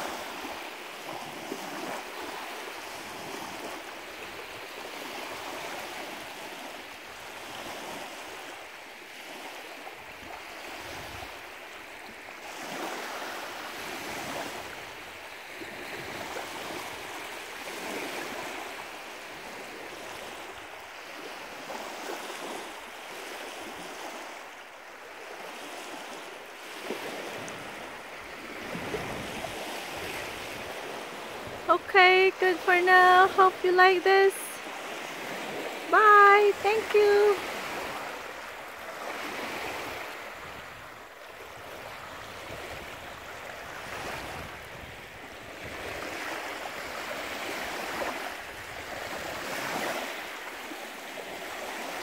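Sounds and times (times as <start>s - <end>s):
waves lapping against shore: 0.0s - 52.0s.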